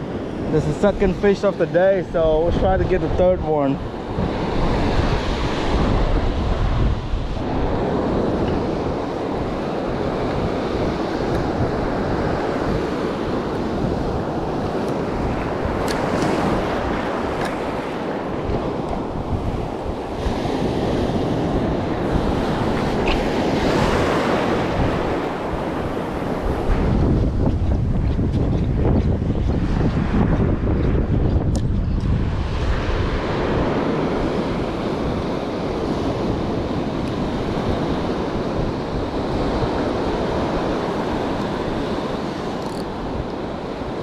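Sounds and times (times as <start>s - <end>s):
surf breaking on beach: 0.0s - 30.8s
wind buffeting microphone: 0.0s - 44.0s.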